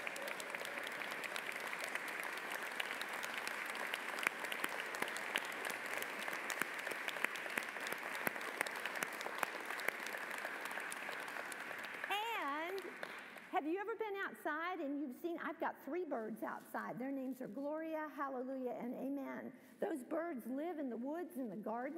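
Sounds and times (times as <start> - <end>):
crowd applauding: 0.0 - 13.5.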